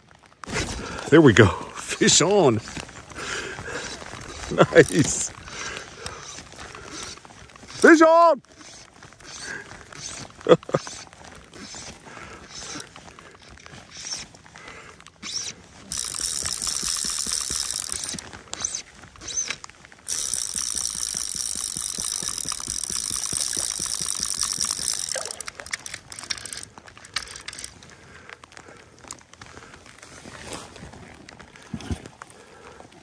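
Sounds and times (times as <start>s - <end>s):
fishing reel drag clicking: 3.8s - 12.9s, 15.2s - 27.8s.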